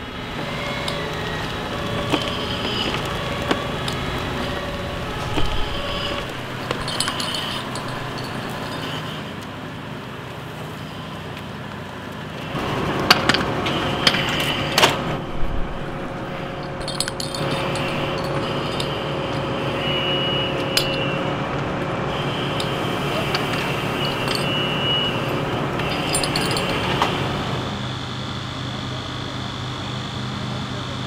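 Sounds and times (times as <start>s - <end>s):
fire engine pump running: 0.0s - 31.0s
metallic clanks of hose couplings: 2.0s - 9.2s, 16.6s - 19.1s, 20.6s - 21.1s, 22.6s - 24.9s, 25.8s - 27.2s.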